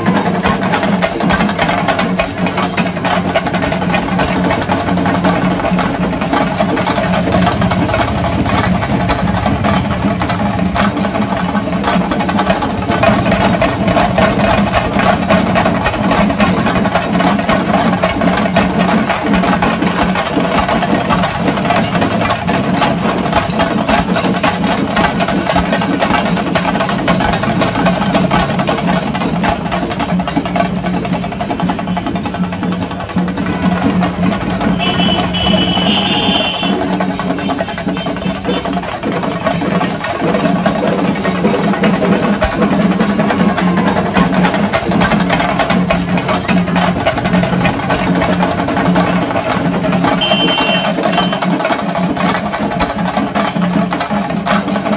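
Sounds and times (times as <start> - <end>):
fast drumming: 0.0 - 54.9.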